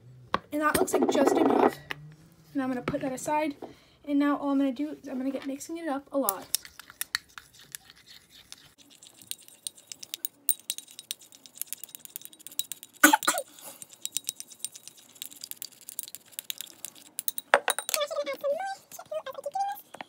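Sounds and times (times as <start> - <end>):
stick tapping against glass bowl: 9.2 - 12.9, 13.9 - 18.0.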